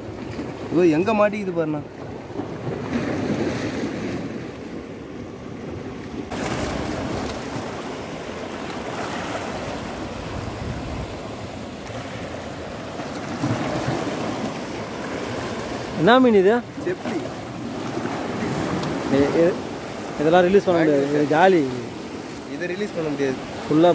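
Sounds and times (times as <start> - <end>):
sea waves: 0.0 - 23.9
wind rumbling on microphone: 2.1 - 16.0.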